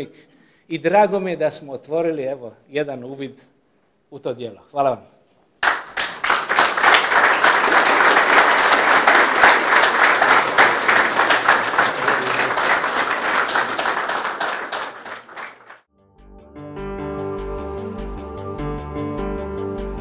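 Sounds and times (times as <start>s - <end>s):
audience applauding: 5.6s - 15.9s.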